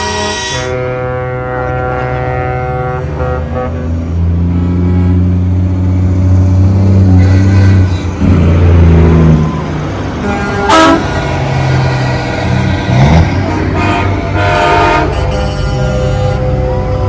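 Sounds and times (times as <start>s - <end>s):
air horn toot: 0.0s - 5.3s, 7.2s - 8.0s, 10.2s - 11.2s, 13.4s - 17.0s
diesel truck engines passing: 0.0s - 17.0s.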